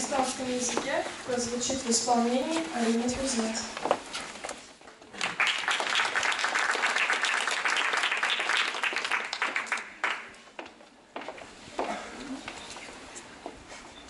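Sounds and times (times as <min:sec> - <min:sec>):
audience applause: 0:05.1 - 0:10.4.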